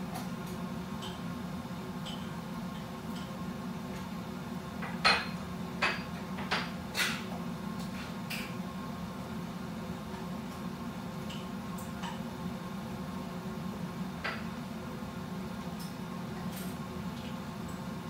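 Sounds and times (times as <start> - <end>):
kitchenware clinking: 4.8 - 7.3.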